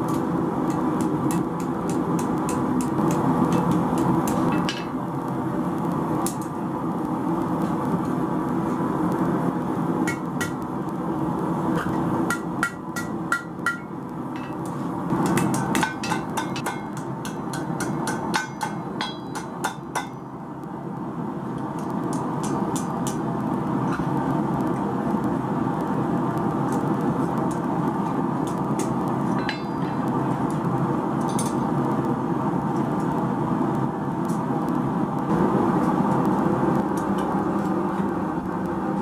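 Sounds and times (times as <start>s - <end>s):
gas forge roaring: 0.0s - 39.0s
hammer ringing on anvil: 15.3s - 20.2s, 29.4s - 30.0s.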